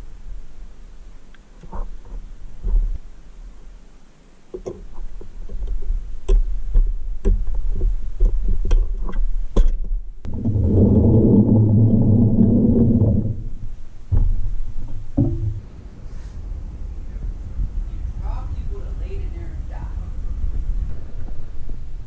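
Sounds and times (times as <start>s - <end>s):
loud dense low rumble: 10.2s - 22.0s.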